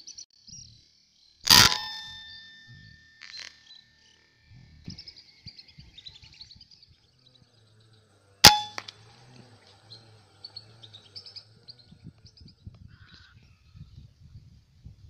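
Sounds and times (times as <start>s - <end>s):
birds chirping: 0.0s - 14.3s
air rifle shot: 1.5s - 2.5s, 8.4s - 8.9s
short metallic ring: 1.5s - 3.9s, 8.4s - 9.0s.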